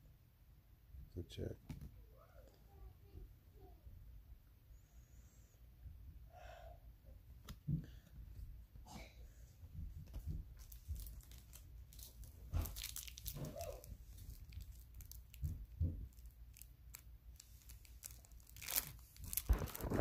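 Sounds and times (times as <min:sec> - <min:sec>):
foil wrapper crinkling and tearing: 0:10.6 - 0:20.0.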